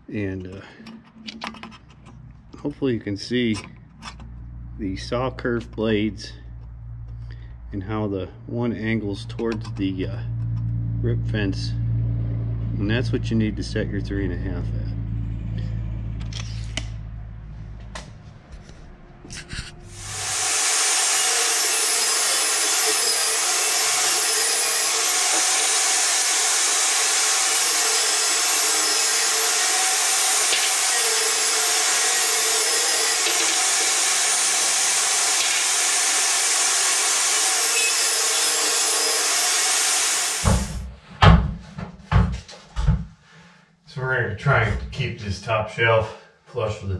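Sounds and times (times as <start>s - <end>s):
table saw ripping wood: 19.4s - 40.9s.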